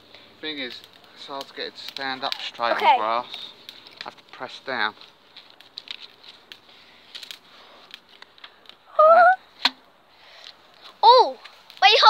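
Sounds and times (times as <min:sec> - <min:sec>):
wood fire crackling: 0:00.0 - 0:12.0
high-pitched rising cry: 0:08.9 - 0:09.4
sharp pop: 0:09.6 - 0:09.8.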